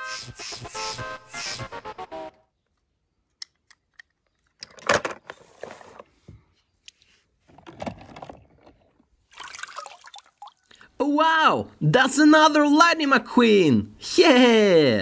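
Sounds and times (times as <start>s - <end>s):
water sloshing in plastic tub: 8.0s - 10.6s.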